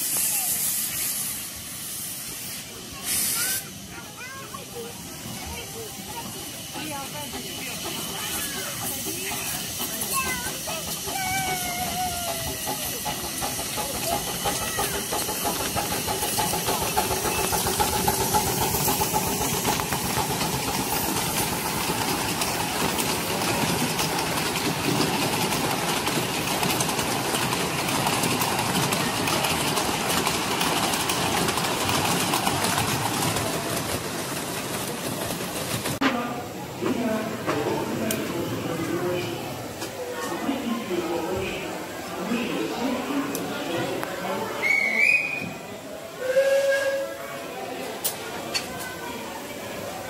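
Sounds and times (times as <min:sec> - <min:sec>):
steam locomotive exhaust beats: 0:00.0 - 0:36.0.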